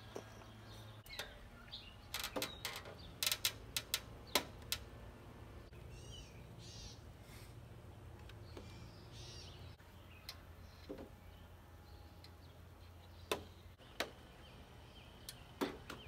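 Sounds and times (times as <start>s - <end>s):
bird chirping: 0.0s - 3.4s, 5.6s - 7.1s, 7.9s - 16.0s.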